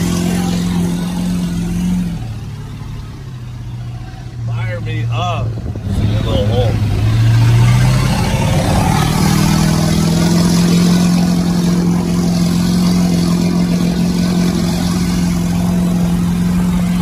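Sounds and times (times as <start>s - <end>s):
truck engine pulling: 0.0s - 17.0s
water rushing and splashing: 5.2s - 17.0s.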